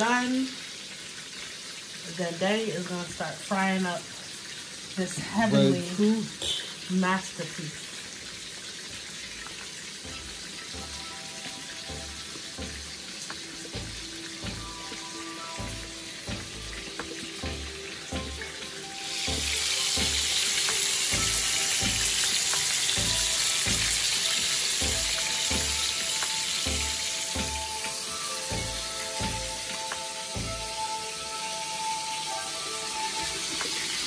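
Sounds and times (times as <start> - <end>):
chicken frying in hot oil: 0.0 - 34.0
background music with steady beat: 9.4 - 34.0.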